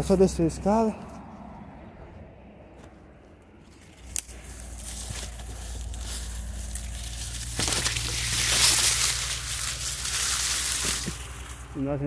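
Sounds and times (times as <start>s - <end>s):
footsteps: 2.7s - 11.8s
dry grass rustling and crackling: 3.2s - 12.0s.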